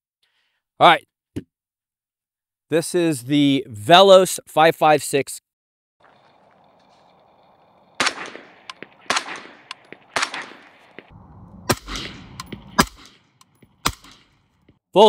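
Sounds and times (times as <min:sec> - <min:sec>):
suppressed rifle shots: 0:06.0 - 0:14.6.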